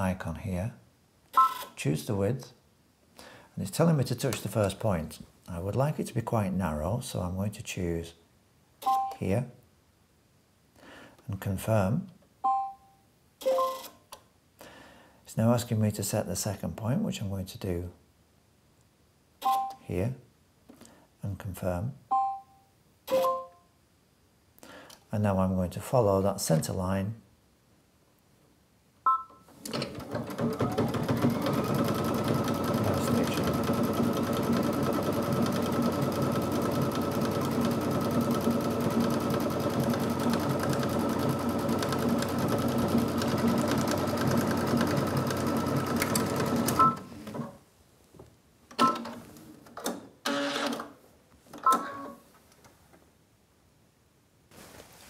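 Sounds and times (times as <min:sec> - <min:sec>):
short beeps: 0:12.4 - 0:13.9, 0:19.4 - 0:19.8, 0:22.1 - 0:23.7
sewing machine running: 0:29.8 - 0:46.8.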